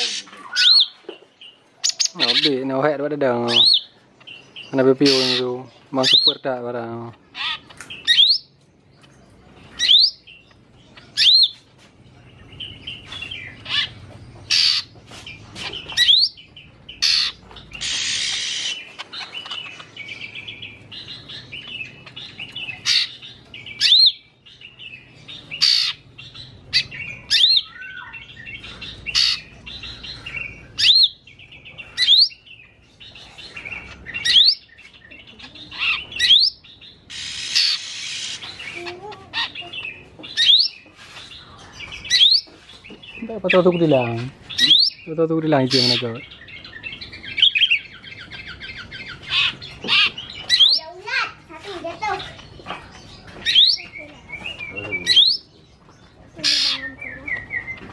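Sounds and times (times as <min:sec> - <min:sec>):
harsh bird rasp: 0:00.0 - 0:01.0, 0:04.8 - 0:06.3, 0:13.6 - 0:16.3, 0:17.0 - 0:19.9, 0:22.1 - 0:24.1, 0:25.6 - 0:26.1, 0:28.6 - 0:31.1, 0:35.5 - 0:39.7, 0:40.3 - 0:42.9, 0:56.4 - 0:56.9
bird singing: 0:00.0 - 0:57.9.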